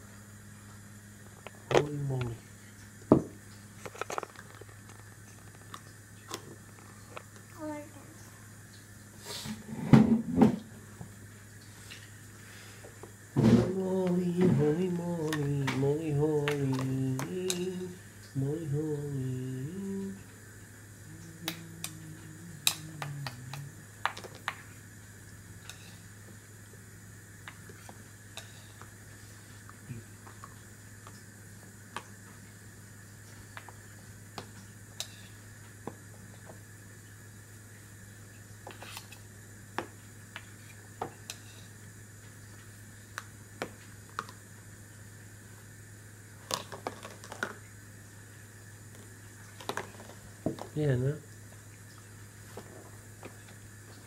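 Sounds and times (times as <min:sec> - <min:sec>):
person humming low notes: 0:13.4 - 0:20.3, 0:21.0 - 0:23.9
plastic bowls clicking and tapping: 0:46.4 - 0:47.6.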